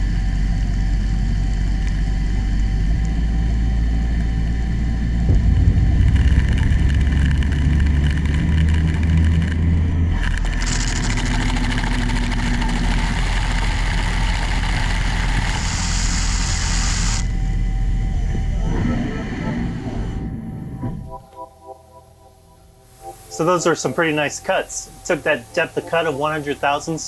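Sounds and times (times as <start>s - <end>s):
low spindle rumble: 0.0s - 26.2s
metal cutting hiss: 13.0s - 17.3s, 22.8s - 27.0s.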